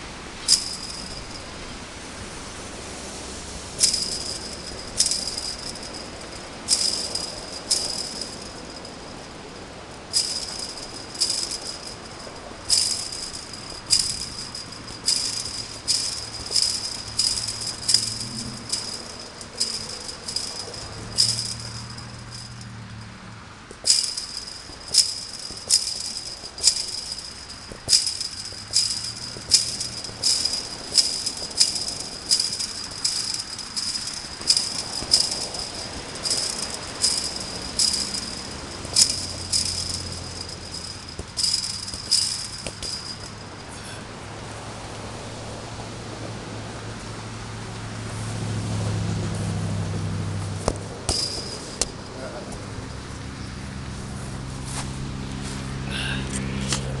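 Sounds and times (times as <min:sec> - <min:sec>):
kicks on chain-link fence: 0:00.0 - 0:01.5, 0:03.7 - 0:43.8, 0:50.3 - 0:53.2
wire mesh jangling: 0:00.4 - 0:01.7, 0:03.7 - 0:43.9, 0:50.6 - 0:53.2.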